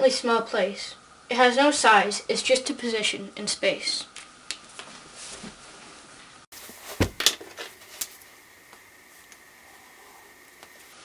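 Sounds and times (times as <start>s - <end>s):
thin high hum: 5.1s - 11.0s
handling thump: 6.7s - 7.7s.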